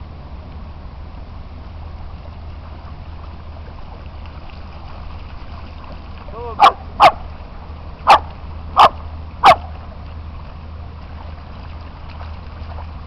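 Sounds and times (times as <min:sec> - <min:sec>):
dog barking: 0:06.6 - 0:07.2, 0:08.1 - 0:09.7.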